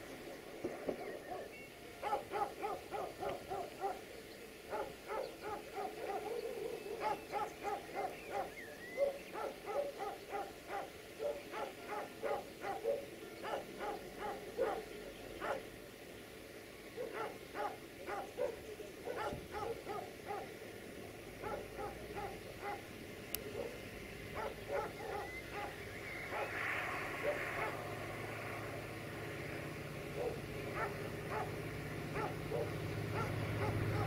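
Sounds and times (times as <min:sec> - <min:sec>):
dog barking: 0:01.3 - 0:04.0, 0:04.7 - 0:15.7, 0:17.0 - 0:20.5, 0:21.4 - 0:22.8, 0:23.6 - 0:23.8, 0:24.4 - 0:26.6, 0:27.2 - 0:27.8, 0:30.2 - 0:34.0
diesel locomotive engine drone: 0:19.5 - 0:34.0.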